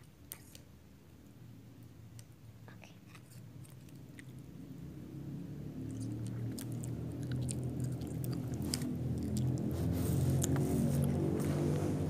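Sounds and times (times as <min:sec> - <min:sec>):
chewing snack: 0:00.2 - 0:00.7, 0:02.8 - 0:04.4, 0:05.8 - 0:11.7.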